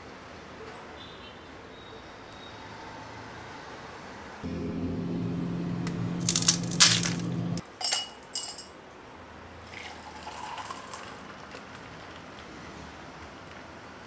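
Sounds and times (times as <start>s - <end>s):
motor hum: 4.4s - 7.6s
glass or utensils clinking: 7.8s - 8.8s
liquid pouring: 9.7s - 12.2s.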